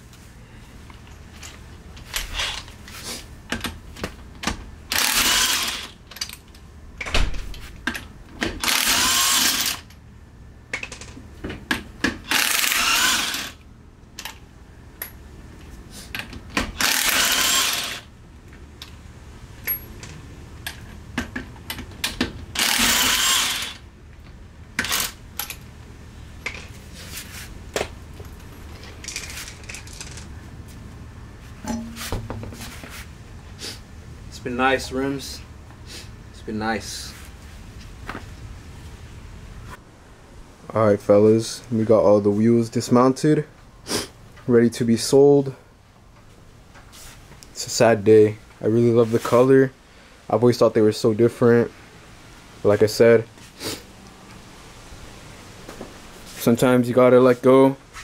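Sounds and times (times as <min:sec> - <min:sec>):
impact wrench hammering: 0:31.6 - 0:32.6.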